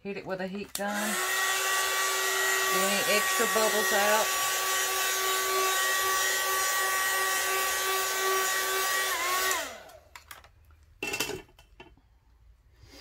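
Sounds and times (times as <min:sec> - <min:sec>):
hot air gun blowing: 0:00.9 - 0:10.0.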